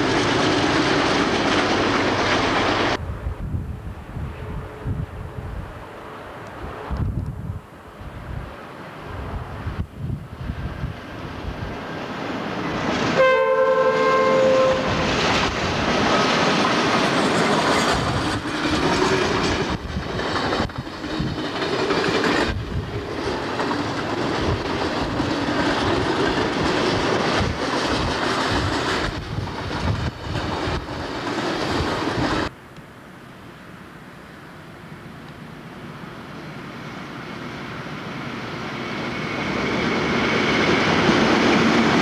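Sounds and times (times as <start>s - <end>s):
train wheels clattering over rail joints: 15.0s - 32.5s
freight wagons running noise: 16.1s - 32.5s.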